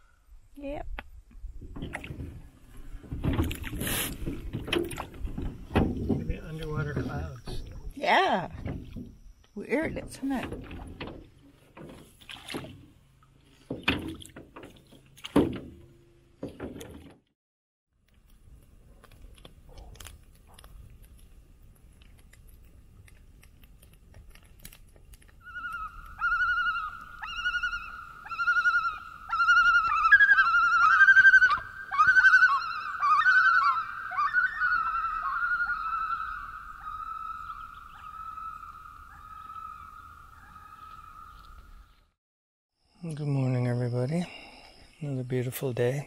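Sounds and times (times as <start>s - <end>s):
loon tremolo call: 25.4s - 41.3s.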